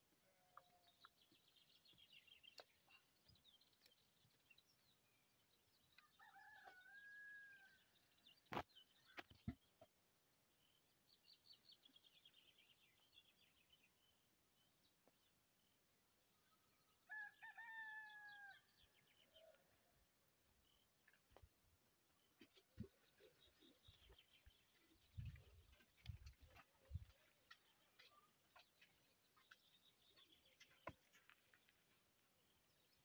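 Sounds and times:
small birds chirping: 0.5 - 6.6, 22.1 - 33.0
distant rooster crowing: 6.0 - 7.8, 17.1 - 18.7.

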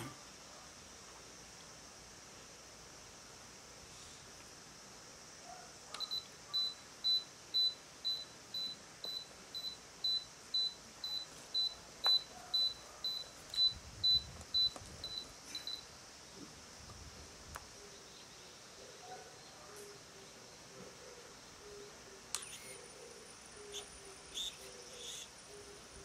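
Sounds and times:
short high-pitched beeps: 6.0 - 15.8.

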